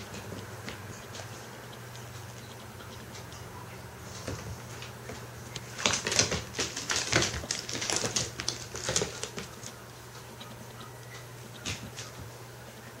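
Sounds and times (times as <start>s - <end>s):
cat claws clattering on wooden floor: 5.7s - 9.7s.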